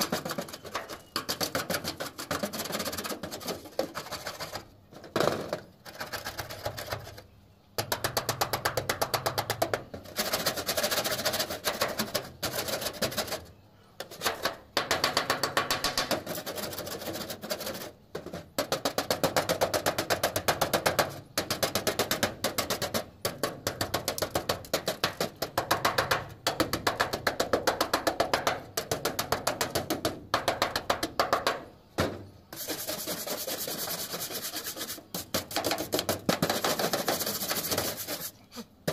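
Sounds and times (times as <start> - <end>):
metal scraper on corrugated steel: 32.5 - 38.9.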